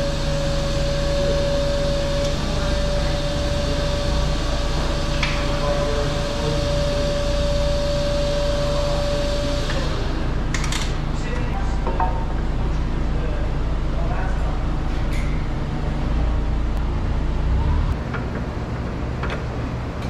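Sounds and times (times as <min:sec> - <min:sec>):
low hum: 0:11.2 - 0:20.0.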